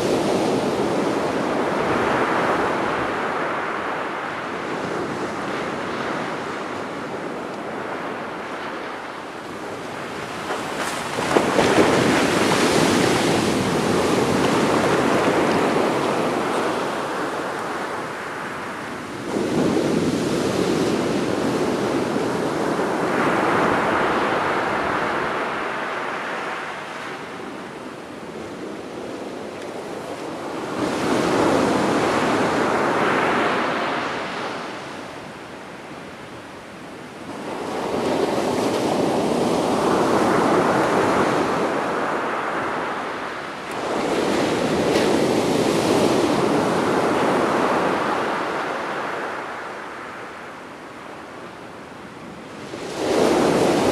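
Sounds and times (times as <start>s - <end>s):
waves crashing on beach: 0.0s - 53.9s.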